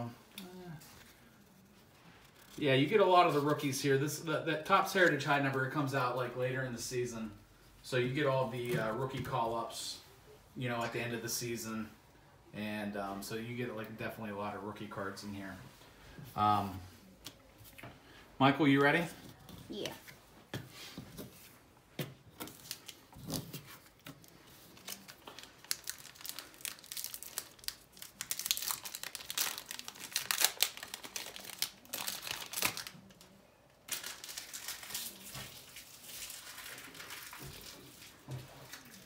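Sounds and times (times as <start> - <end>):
card pack wrappers crinkling and tearing: 22.4 - 39.0.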